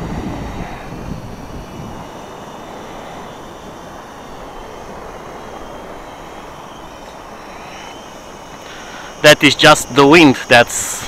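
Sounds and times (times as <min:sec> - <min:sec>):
wind noise on microphone: 0:00.0 - 0:07.7
drone propellers whining: 0:00.0 - 0:11.0.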